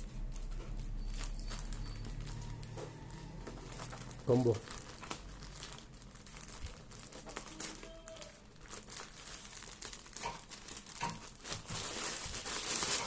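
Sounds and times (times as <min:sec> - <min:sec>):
scissors cutting plastic: 0:00.0 - 0:05.3, 0:09.0 - 0:13.0
plastic bag crinkling: 0:00.0 - 0:13.0.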